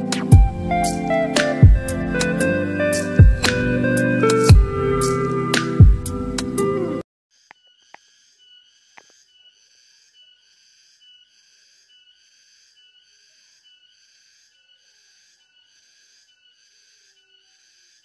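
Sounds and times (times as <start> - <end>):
insects chirring: 7.4 - 18.0.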